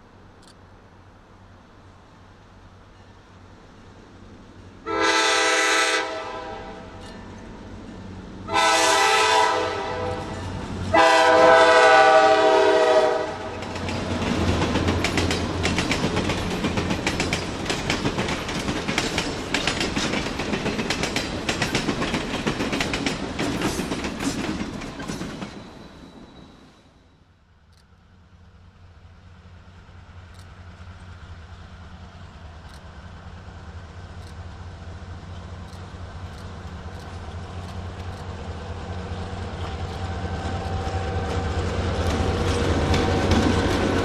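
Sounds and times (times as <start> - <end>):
train horn blasts: 4.8 - 7.1, 8.4 - 13.6
train wheels clicking over rail joints: 6.8 - 8.2, 12.9 - 26.6, 30.1 - 44.0.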